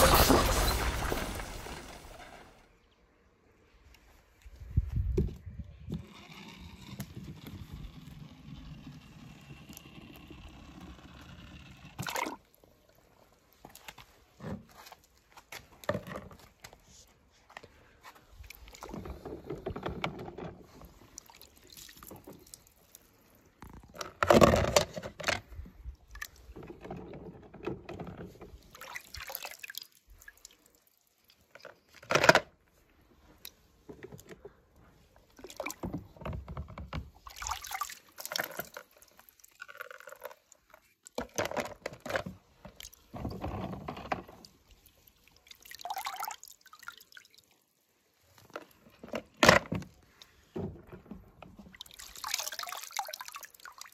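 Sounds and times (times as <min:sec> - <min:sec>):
water splashing in plastic tub: 0:12.0 - 0:12.6, 0:18.4 - 0:23.1, 0:26.1 - 0:32.0, 0:35.0 - 0:47.6, 0:48.2 - 0:53.9.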